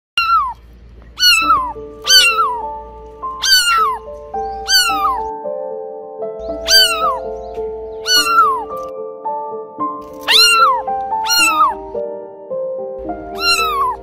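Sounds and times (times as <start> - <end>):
kitten meowing loudly: 0.2 - 0.6, 1.2 - 2.7, 3.3 - 5.3, 6.6 - 7.3, 8.0 - 8.9, 10.2 - 11.9, 13.3 - 14.0
soft background music: 0.6 - 14.0.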